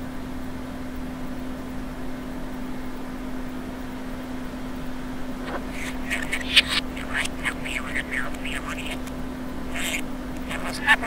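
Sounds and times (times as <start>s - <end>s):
steady hum: 5.3s - 11.0s
background hiss: 5.4s - 11.0s
budgerigar chirps played in reverse: 5.5s - 9.1s, 9.7s - 11.0s.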